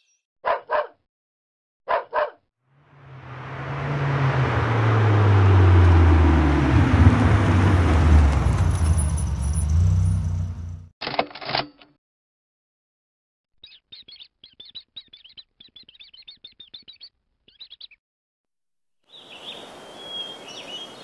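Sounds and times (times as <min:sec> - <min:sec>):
car driving by: 0:02.7 - 0:10.9.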